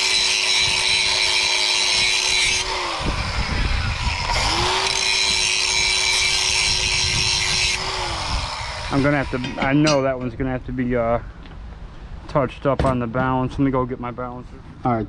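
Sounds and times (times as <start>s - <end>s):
angle grinder grinding: 0.0s - 10.0s
angle grinder winding down: 0.0s - 10.0s.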